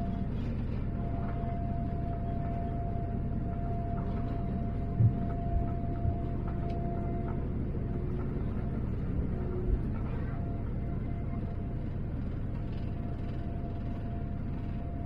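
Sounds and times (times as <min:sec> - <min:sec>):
aircraft cabin engine rumble: 0:00.0 - 0:15.0.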